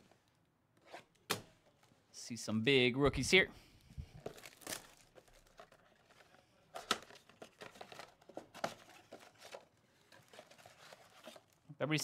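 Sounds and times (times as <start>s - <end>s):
cardboard crinkling and tearing: 4.2s - 11.6s.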